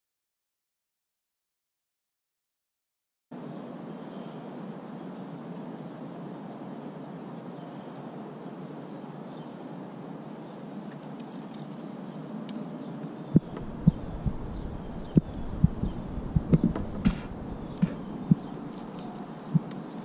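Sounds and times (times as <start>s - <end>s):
open-air ambience hiss: 3.3s - 20.0s
dull thumps and knocks: 13.4s - 18.5s.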